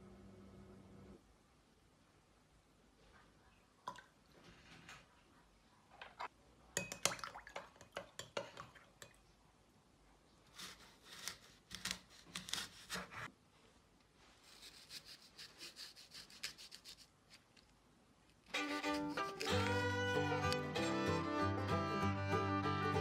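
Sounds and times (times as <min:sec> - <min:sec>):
knife cutting crisp apples: 0:10.5 - 0:13.3, 0:14.5 - 0:17.5, 0:18.5 - 0:21.6.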